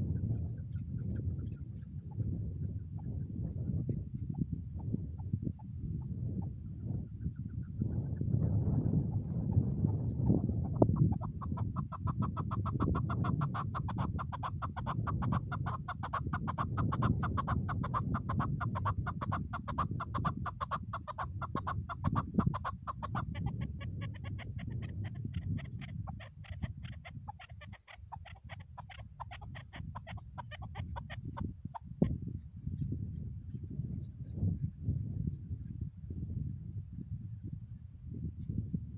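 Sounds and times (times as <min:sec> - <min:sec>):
steady low rumble: 0:00.0 - 0:13.9
partridge clucking call: 0:08.8 - 0:31.9.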